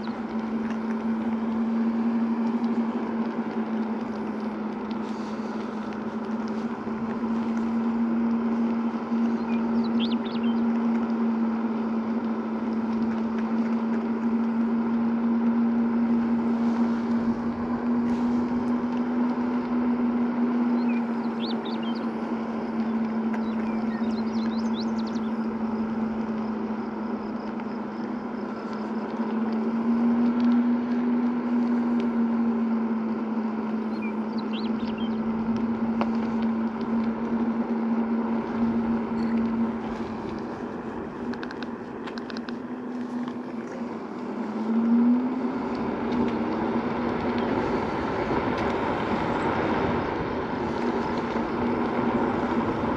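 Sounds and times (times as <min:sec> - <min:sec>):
tyres rolling: 0:00.0 - 0:32.8, 0:33.6 - 0:52.9
electric scooter motor hum: 0:00.0 - 0:52.9
wind noise: 0:45.7 - 0:52.9.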